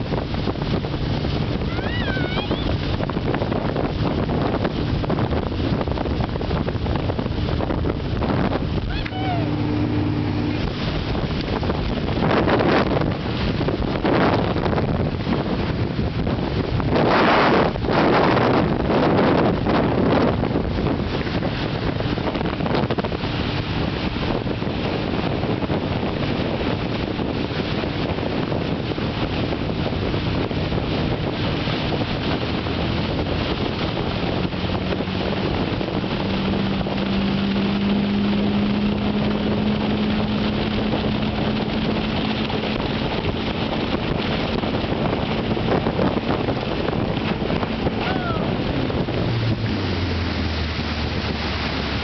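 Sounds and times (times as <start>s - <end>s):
water spray rushing: 0.0s - 14.4s, 27.5s - 52.0s
motorboat engine running: 0.0s - 52.0s
wind on microphone: 0.0s - 52.0s.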